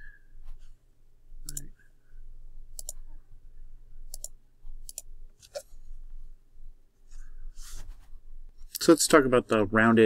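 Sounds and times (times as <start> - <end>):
computer mouse button clicking: 1.5 - 1.7, 2.8 - 3.0, 4.1 - 5.1.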